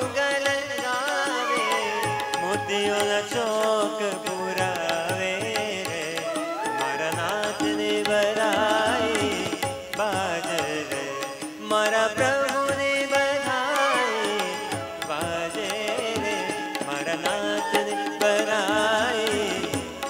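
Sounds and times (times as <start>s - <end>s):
keyboard: 0.0s - 20.0s
tabla: 0.0s - 20.0s
bamboo flute melody: 1.0s - 3.5s, 6.2s - 7.4s, 13.7s - 20.0s.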